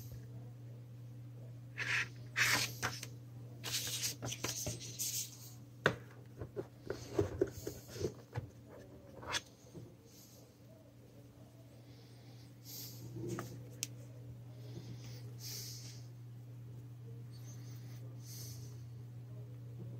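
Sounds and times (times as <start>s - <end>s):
steady low hum: 0.0s - 19.9s
paper rustling: 1.8s - 5.4s.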